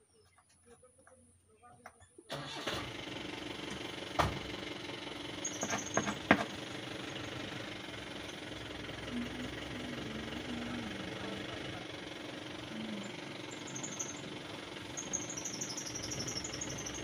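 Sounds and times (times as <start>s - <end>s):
motor running steadily: 2.6s - 17.0s
sharp clicks and knocks: 5.6s - 6.6s.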